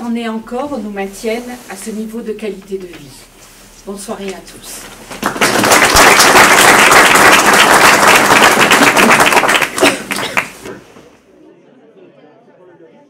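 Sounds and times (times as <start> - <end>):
audience applauding: 5.1 - 10.9.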